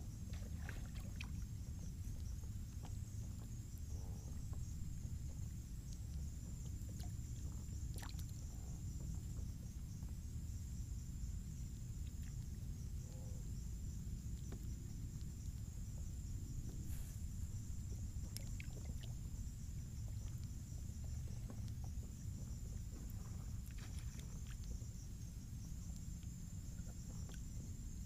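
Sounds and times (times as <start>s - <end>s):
water lapping against kayak: 0.0s - 28.0s
steady high hiss: 15.7s - 18.1s.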